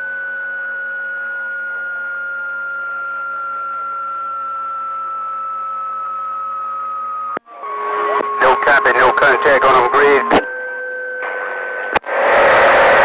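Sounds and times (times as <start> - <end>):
radio whistle drifting lower: 2.0 - 10.4.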